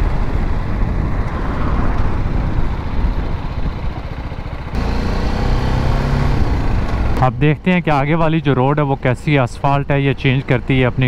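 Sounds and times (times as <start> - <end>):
wind rush on microphone: 0.0 - 4.4
motorcycle engine running: 0.0 - 7.5.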